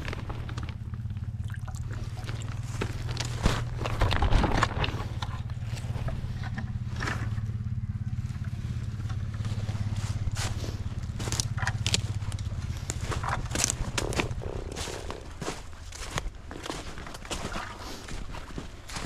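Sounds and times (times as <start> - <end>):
bucket being handled: 0.0 - 7.5, 8.4 - 19.0
low mechanical drone: 0.0 - 19.0
plastic bag rustling: 2.0 - 5.9
footsteps crunching through snow: 2.0 - 6.4, 8.1 - 19.0.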